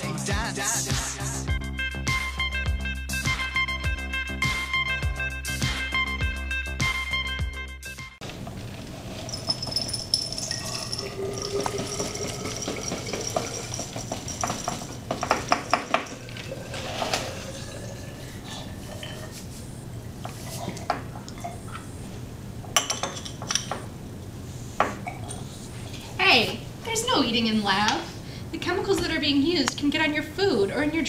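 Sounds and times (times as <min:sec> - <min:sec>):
cereal rattling into glass jar: 0:08.8 - 0:18.1
glass clinking on bench: 0:09.1 - 0:19.4, 0:22.8 - 0:23.8.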